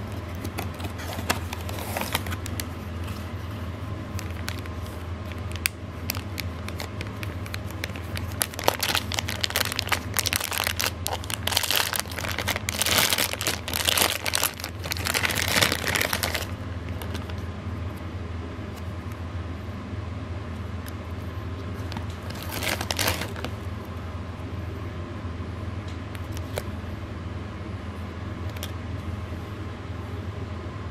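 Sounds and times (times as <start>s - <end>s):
plastic bag crinkling: 0.0s - 3.4s, 4.1s - 17.4s, 21.8s - 23.6s
steady low hum: 0.0s - 30.9s.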